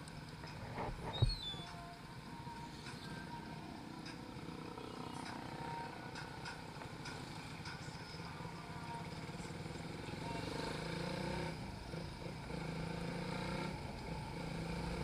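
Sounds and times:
motorcycle engine running: 0:08.9 - 0:15.0.

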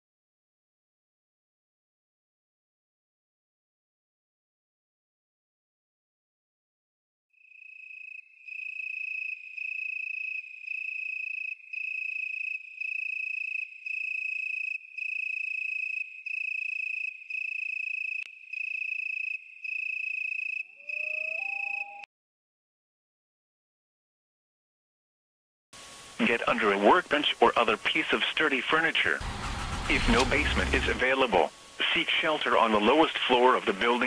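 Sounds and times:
low wavering tone: 0:20.8 - 0:22.1
high-pitched electronic beeps: 0:20.9 - 0:22.1.

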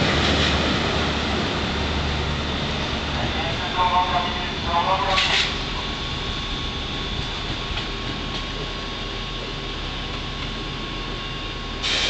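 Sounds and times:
trains rumbling and humming: 0:00.0 - 0:12.0.

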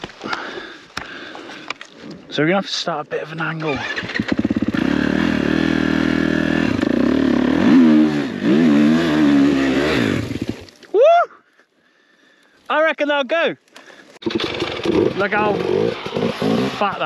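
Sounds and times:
motocross bike engine revving: 0:03.7 - 0:10.6, 0:14.2 - 0:17.0
short rising whoop: 0:10.9 - 0:11.4.

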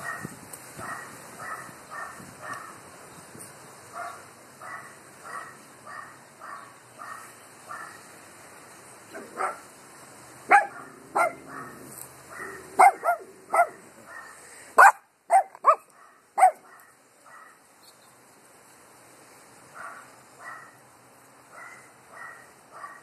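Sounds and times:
small dogs barking: 0:00.0 - 0:02.8, 0:03.9 - 0:08.1, 0:09.1 - 0:09.7, 0:10.4 - 0:17.6, 0:19.7 - 0:20.8, 0:21.5 - 0:23.0.

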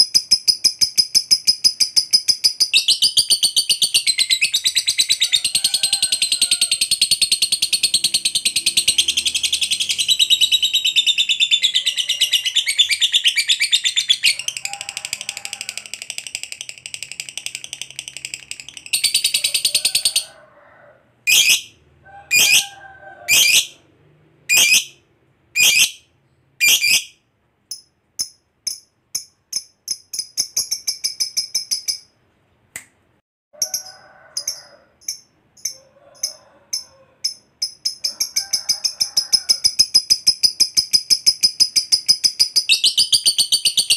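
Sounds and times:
bird chirps: 0:00.0 - 0:05.6, 0:06.8 - 0:14.5, 0:21.3 - 0:22.6, 0:24.5 - 0:25.0, 0:25.6 - 0:32.1, 0:39.8 - 0:43.9
lovebird chattering trill: 0:00.0 - 0:20.2, 0:21.3 - 0:21.7, 0:22.3 - 0:22.7, 0:23.3 - 0:23.7, 0:24.5 - 0:25.0, 0:25.6 - 0:26.0, 0:26.6 - 0:27.1
lovebird sharp calls: 0:21.3 - 0:21.7, 0:22.3 - 0:23.7, 0:24.5 - 0:25.0, 0:25.6 - 0:26.0, 0:26.6 - 0:27.2.

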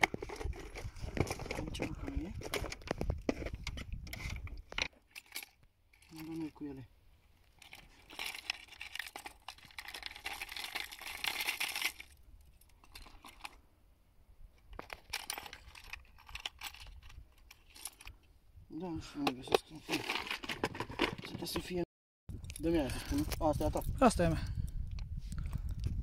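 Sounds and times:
fishing lures clinking in tackle box: 0:07.6 - 0:13.6, 0:14.7 - 0:18.1.

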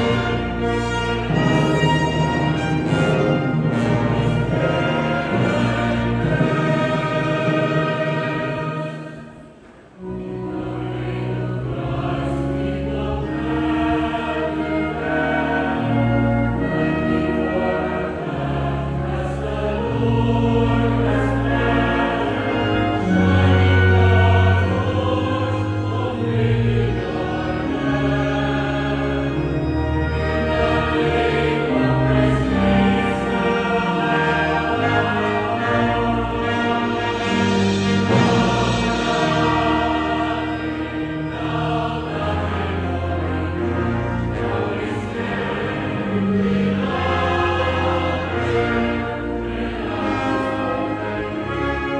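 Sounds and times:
choir singing held notes: 0:00.0 - 0:51.9
instrumental accompaniment: 0:00.0 - 0:51.9.

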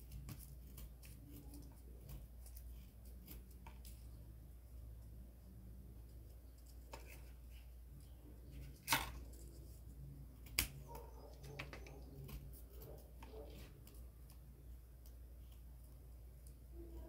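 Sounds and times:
scissors snipping cardboard: 0:00.0 - 0:03.9
low steady hum: 0:00.0 - 0:17.0.

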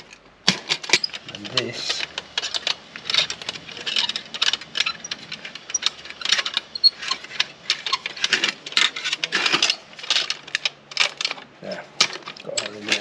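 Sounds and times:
metal pans clinking and rattling: 0:00.0 - 0:13.0.

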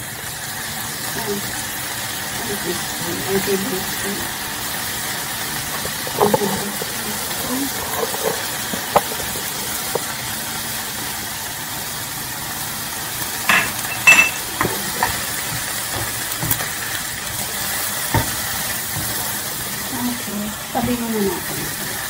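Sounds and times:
food sizzling in a frying pan: 0:00.0 - 0:22.0
utensil tapping a pan: 0:13.5 - 0:16.7, 0:18.1 - 0:19.2.

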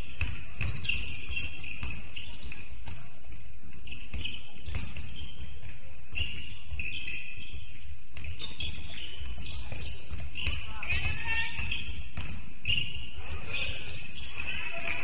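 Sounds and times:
basketball bouncing on court: 0:00.0 - 0:15.0
sneaker squeaks: 0:00.0 - 0:15.0
faint echoing voices: 0:09.0 - 0:15.0.

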